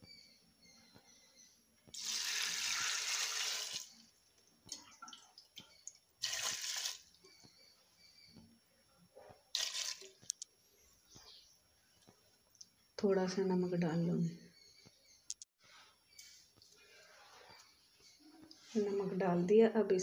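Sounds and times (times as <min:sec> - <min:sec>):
liquid pouring into a pot: 0:04.7 - 0:07.2, 0:09.5 - 0:10.3.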